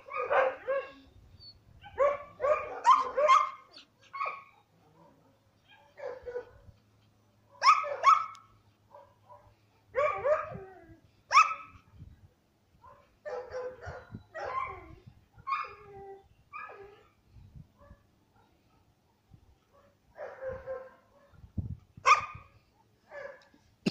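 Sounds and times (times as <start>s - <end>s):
dog barking: 0.0s - 1.0s, 1.9s - 6.6s, 7.5s - 10.5s, 12.8s - 14.6s, 22.1s - 22.4s, 23.1s - 23.5s.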